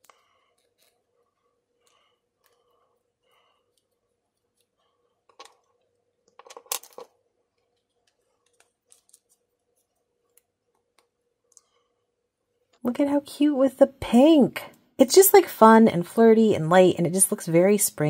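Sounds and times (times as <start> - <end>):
clatter on hard desk: 6.4 - 7.1.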